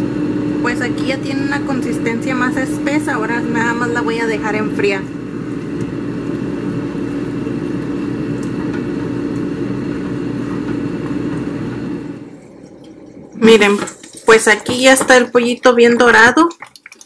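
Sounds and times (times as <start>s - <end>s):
mechanical whirring hum: 0.0s - 15.1s.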